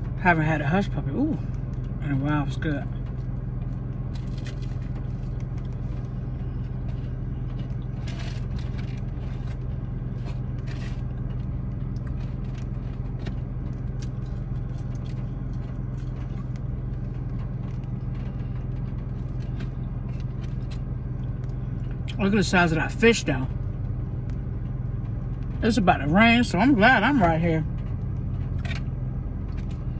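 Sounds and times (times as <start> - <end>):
car engine hum inside cabin: 0.0 - 29.9
chewing and food box rustling: 3.0 - 22.2.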